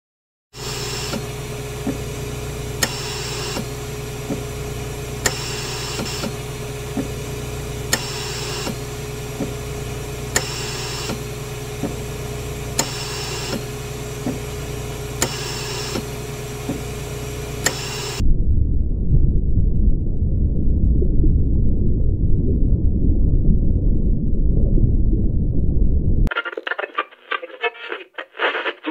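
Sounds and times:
hiss: 0.6s - 1.2s, 2.8s - 3.8s, 5.2s - 6.4s, 7.9s - 8.8s, 10.4s - 11.3s, 12.8s - 13.7s, 15.2s - 18.2s
machine hum: 0.6s - 18.7s
low rumble: 18.2s - 26.3s.

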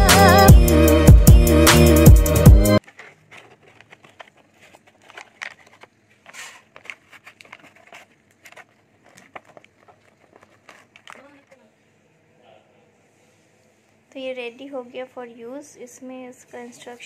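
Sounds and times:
loud background music: 0.0s - 2.8s
packaging crinkling and clicking: 2.8s - 11.6s.

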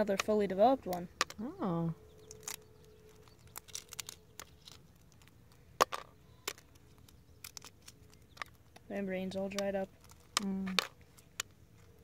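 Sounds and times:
eggshell cracking: 2.1s - 8.9s.

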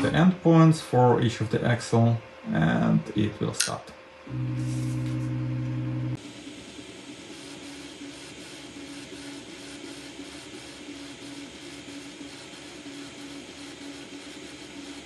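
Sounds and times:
fan hiss: 0.0s - 15.0s
stepper motors whining: 4.3s - 6.2s.

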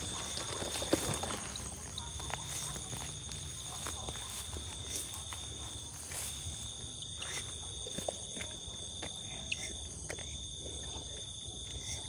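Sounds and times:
plants rustling: 0.0s - 8.8s
night insects trilling: 0.0s - 12.0s.

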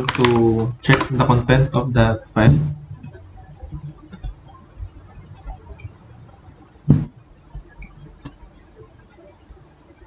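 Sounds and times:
low room noise: 0.0s - 10.0s
computer mouse clicks: 3.0s - 4.4s, 5.3s - 5.9s, 7.5s - 8.5s.

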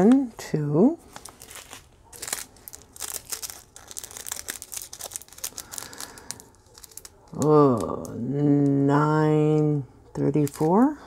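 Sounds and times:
plastic bag crinkling: 1.0s - 8.8s, 10.4s - 11.0s.

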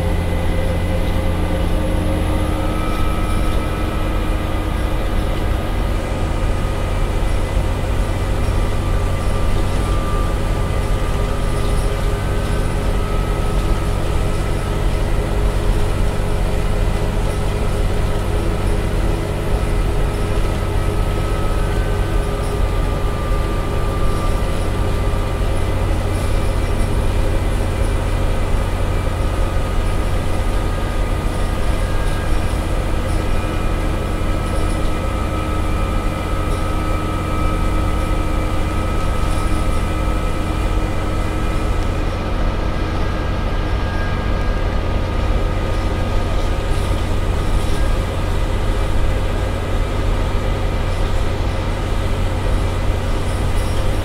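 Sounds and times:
bus diesel engine drone: 0.0s - 54.0s
road noise: 0.0s - 54.0s
thin whine: 0.0s - 54.0s.

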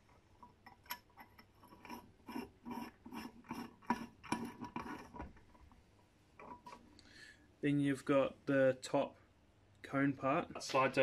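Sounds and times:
threaded rod scraping: 0.7s - 5.3s.

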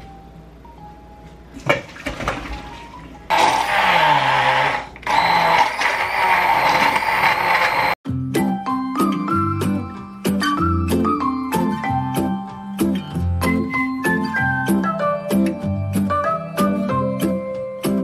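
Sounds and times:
immersion blender whirring: 3.3s - 8.0s.

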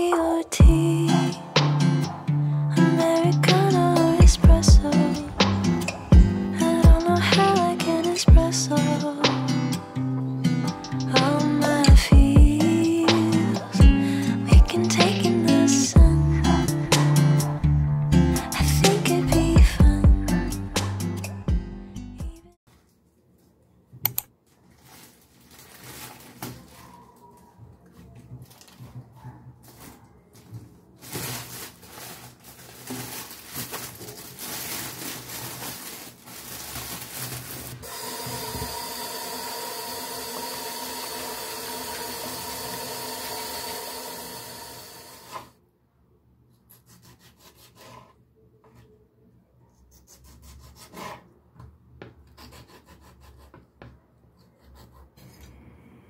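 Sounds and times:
lettuce being rinsed and handled: 24.6s - 27.5s, 28.4s - 44.4s.

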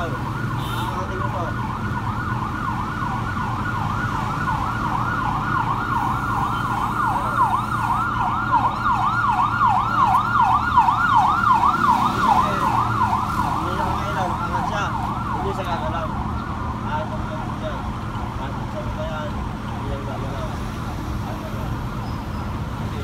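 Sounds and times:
warbling electronic warning alarm: 0.0s - 16.8s.

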